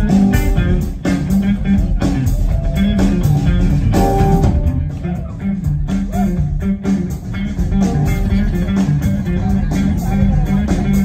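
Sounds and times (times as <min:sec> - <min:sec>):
bass line: 0:00.0 - 0:11.0
electric guitar: 0:00.0 - 0:11.0
live band playing: 0:00.0 - 0:11.0
drum hits: 0:01.9 - 0:06.4.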